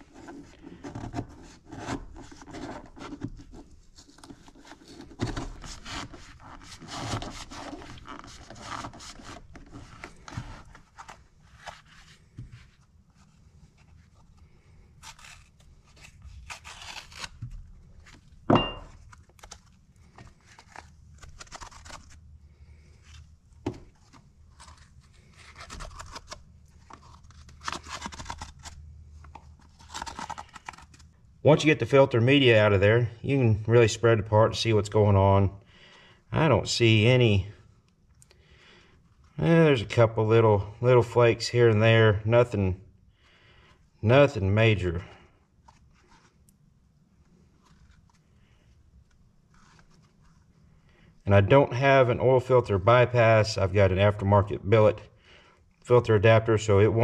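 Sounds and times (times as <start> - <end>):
knife scraping through paper: 0.0 - 12.4, 13.2 - 17.6, 20.2 - 22.9, 24.5 - 28.8
sharp metal clink: 18.5 - 18.9.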